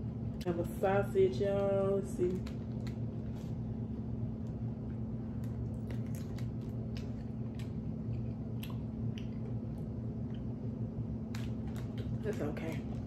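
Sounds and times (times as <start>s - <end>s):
steady low hum: 0.0s - 13.0s
person chewing food: 4.8s - 10.6s, 11.2s - 12.3s
wet mouth clicks: 5.7s - 10.5s.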